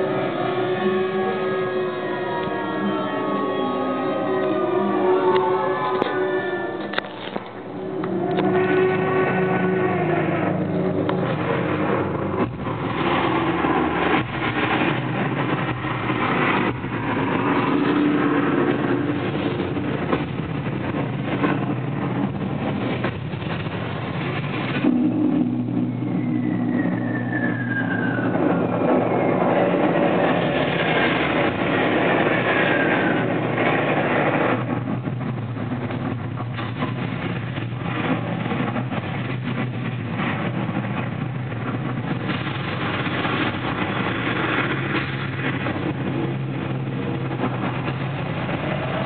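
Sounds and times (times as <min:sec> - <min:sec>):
heavy rumbling: 0:00.0 - 0:49.0
descending whistles: 0:24.8 - 0:30.3.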